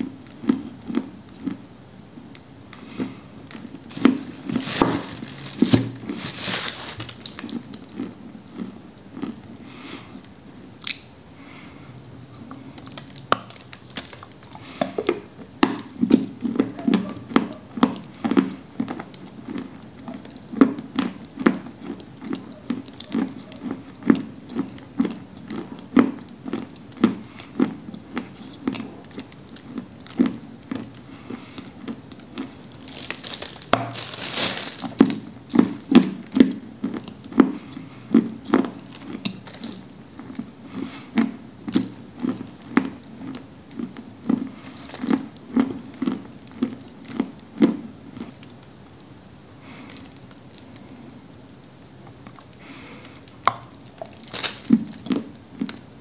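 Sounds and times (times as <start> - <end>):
crunchy chewing of clay: 0.0 - 56.0
crisp bite: 2.3 - 8.7, 12.6 - 14.8, 29.1 - 36.5, 38.5 - 40.5, 49.7 - 55.8.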